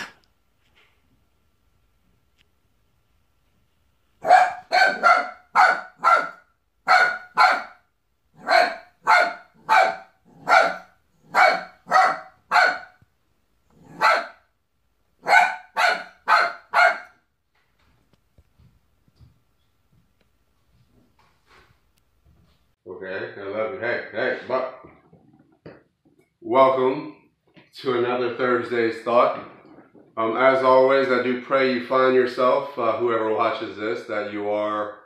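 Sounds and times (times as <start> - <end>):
small dog barking: 4.2 - 7.8, 8.4 - 13.0, 13.8 - 14.4, 15.2 - 17.2.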